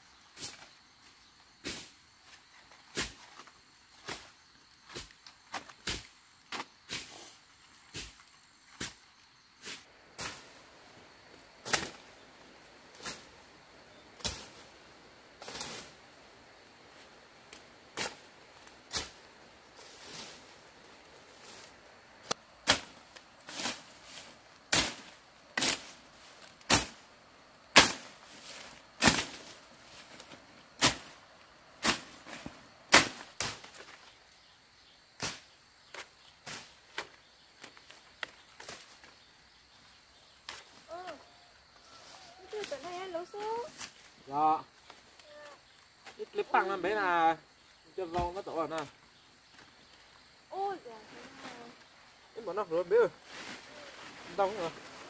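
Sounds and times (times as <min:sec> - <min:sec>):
branches being chopped and broken: 0:11.6 - 0:12.2, 0:22.2 - 0:27.0, 0:27.7 - 0:31.2, 0:31.8 - 0:34.2, 0:35.2 - 0:39.2, 0:40.3 - 0:41.1.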